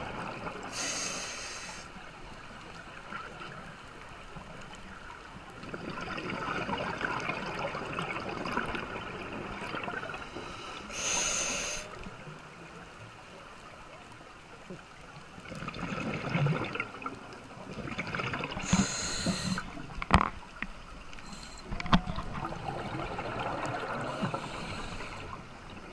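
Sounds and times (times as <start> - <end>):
regulator hiss on inhale: 0.7 - 2.0, 10.2 - 12.0, 18.6 - 19.8, 21.2 - 21.8, 24.0 - 25.4
exhaled bubbles rushing: 15.4 - 17.1, 17.7 - 18.8, 21.8 - 25.9.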